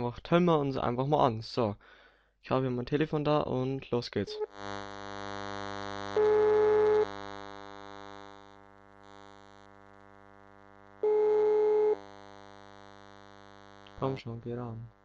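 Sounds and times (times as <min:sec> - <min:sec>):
electrical hum: 0:04.1 - 0:15.0
telephone ringback tone: 0:06.2 - 0:07.1, 0:11.0 - 0:12.0.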